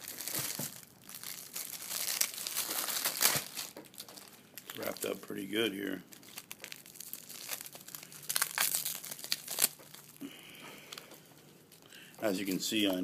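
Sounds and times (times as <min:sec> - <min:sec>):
packaging crinkling and tearing: 0:00.0 - 0:10.3.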